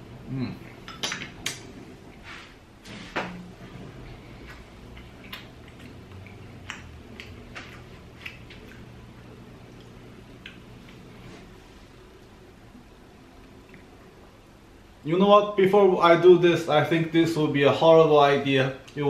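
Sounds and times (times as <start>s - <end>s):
mouth clicks and smacks: 0.9s - 1.7s
person chewing food: 4.1s - 11.3s, 13.4s - 14.0s.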